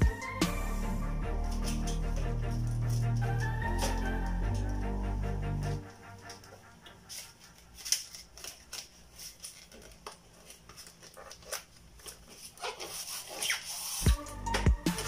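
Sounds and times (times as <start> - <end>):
foam rubbing squeak: 12.5 - 14.1.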